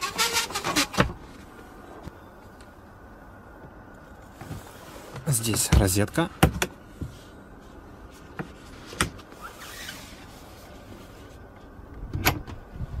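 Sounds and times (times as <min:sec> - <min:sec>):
soft rustle: 0:04.0 - 0:05.4, 0:07.0 - 0:11.7.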